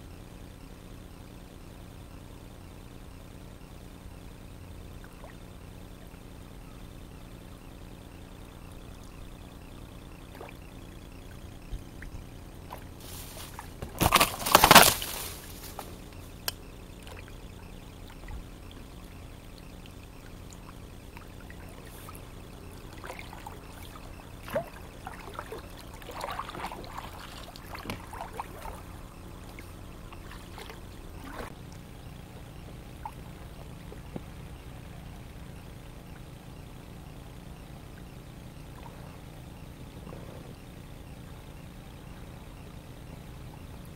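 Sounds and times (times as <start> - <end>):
water splashing and trickling: 17.0 - 31.6.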